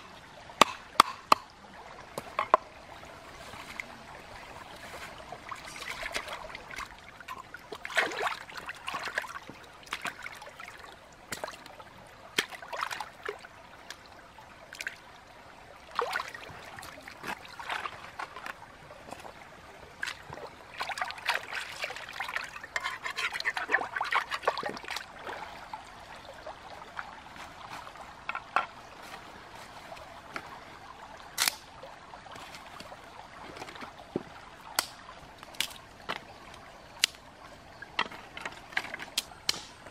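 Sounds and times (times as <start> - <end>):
stream trickling: 0.0 - 39.9
water dripping: 31.4 - 37.3.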